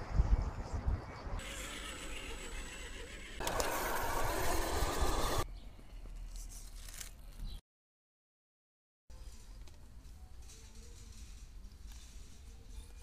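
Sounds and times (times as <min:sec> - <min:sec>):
outdoor noise: 0:00.0 - 0:07.6, 0:09.1 - 0:13.0
electric motors whirring: 0:01.4 - 0:05.4.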